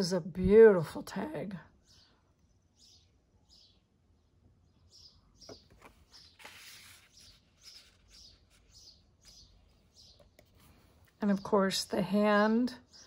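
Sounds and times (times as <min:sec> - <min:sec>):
paper and card handling: 0:05.5 - 0:09.5.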